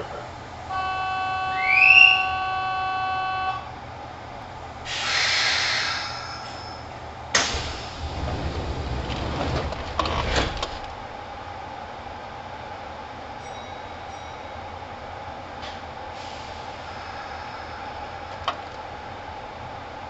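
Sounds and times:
train rumbling: 0.0s - 20.0s
train doors hissing air: 4.8s - 11.0s, 15.6s - 18.6s
electronic departure bell tone: 13.4s - 14.6s.

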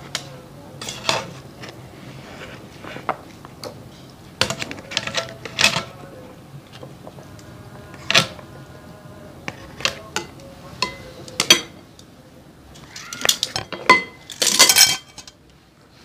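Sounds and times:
metal utensils clinking on wok: 9.8s - 11.8s, 13.2s - 15.4s.

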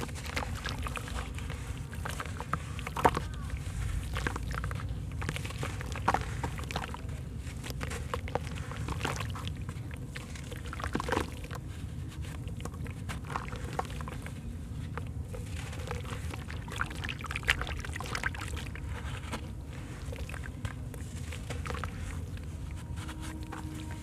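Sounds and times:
wet cement crumbling in a hand: 0.0s - 11.6s
steady low rumble: 0.0s - 24.0s
grit splashing into water: 15.3s - 23.6s.

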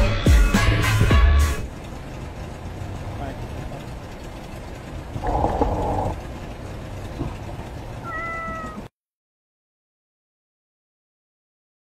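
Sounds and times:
skateboard wheels rolling on concrete: 0.3s - 8.9s
cat meowing: 8.0s - 8.9s.

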